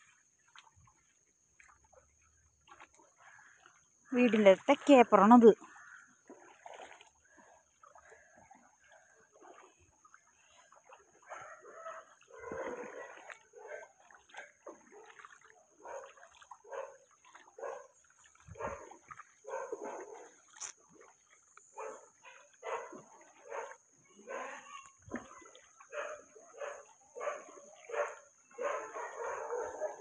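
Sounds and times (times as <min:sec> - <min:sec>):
dogs barking and whining: 0:25.9 - 0:30.0.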